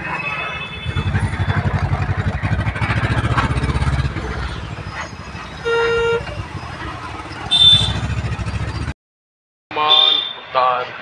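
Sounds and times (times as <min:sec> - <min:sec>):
vehicle engine rumbling: 0:00.0 - 0:09.0
vehicle horn beep: 0:00.3 - 0:01.8, 0:05.6 - 0:06.6, 0:07.4 - 0:08.2, 0:09.8 - 0:10.4.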